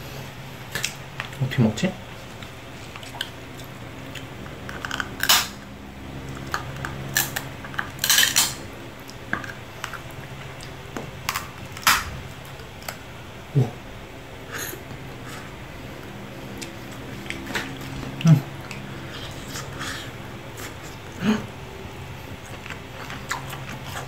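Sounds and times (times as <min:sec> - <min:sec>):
lobster shell cracking: 0:04.6 - 0:05.6, 0:10.6 - 0:12.1.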